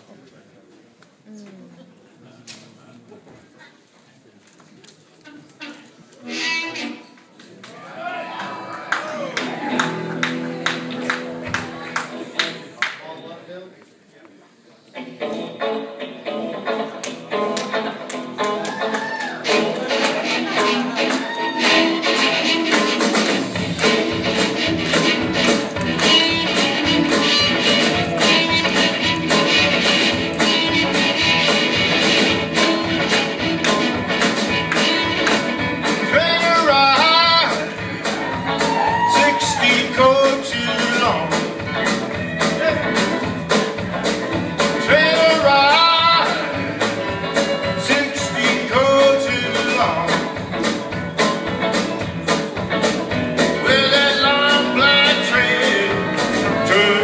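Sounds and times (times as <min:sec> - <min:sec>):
rock band playing: 0:06.2 - 0:07.2, 0:09.0 - 0:12.6, 0:15.0 - 0:57.0
person singing: 0:35.8 - 0:41.5, 0:44.7 - 0:46.7, 0:47.6 - 0:50.3, 0:53.6 - 0:57.0.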